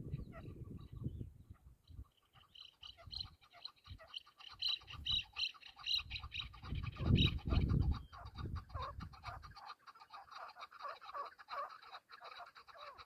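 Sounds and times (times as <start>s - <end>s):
partridge clucking calls: 0.0s - 13.0s.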